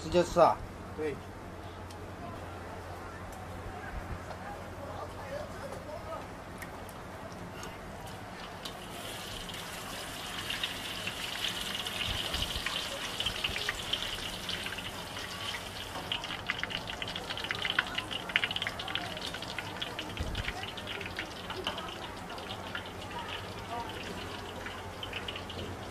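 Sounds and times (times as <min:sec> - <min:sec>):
tofu deep-frying in hot oil: 0:08.3 - 0:25.9
oil popping: 0:08.4 - 0:25.9.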